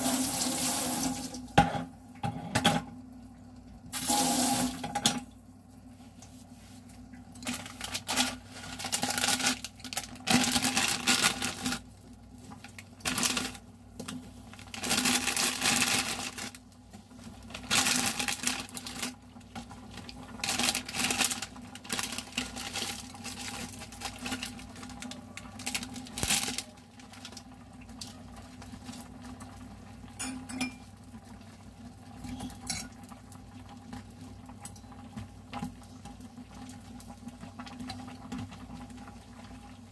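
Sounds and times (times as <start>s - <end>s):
plastic packet crinkling: 7.4s - 28.1s
metal chopsticks clinking on glass: 30.2s - 30.8s, 32.7s - 33.0s.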